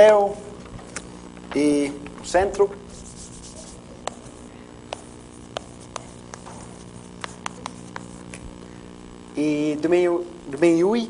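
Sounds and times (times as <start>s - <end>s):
steady low hum: 0.0s - 11.0s
chalk tapping on blackboard: 2.9s - 8.4s.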